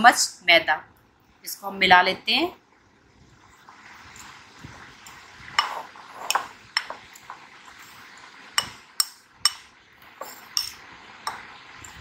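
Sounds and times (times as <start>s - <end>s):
spoon scraping flour: 5.5s - 7.0s, 10.2s - 10.8s
spoon clinking against glass bowl: 10.2s - 11.4s.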